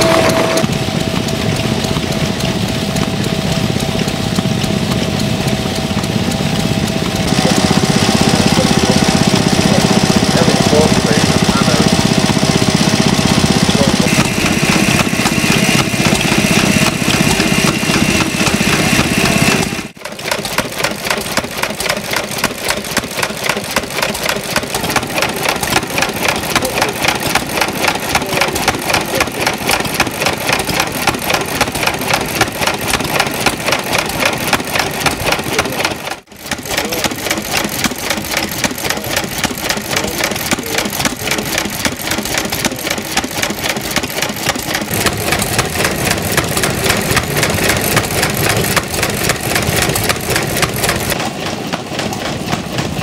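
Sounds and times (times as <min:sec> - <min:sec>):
steady hum: 0:00.0 - 0:20.0
stationary engine running: 0:00.0 - 0:53.0.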